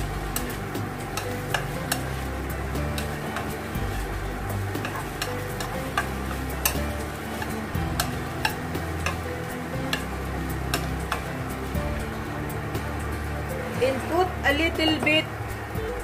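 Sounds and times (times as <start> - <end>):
food sizzling in a pan: 0.0 - 16.0
utensil clicking against pan: 0.3 - 2.2, 4.8 - 11.3.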